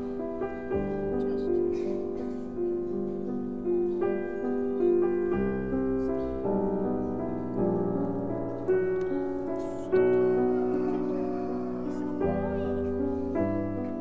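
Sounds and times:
gentle piano music: 0.0s - 14.0s.

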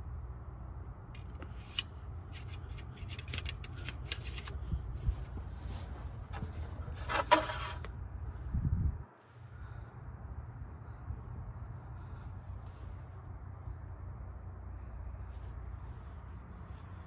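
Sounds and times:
metal parts clicking and scraping: 1.2s - 5.3s, 6.3s - 7.9s.

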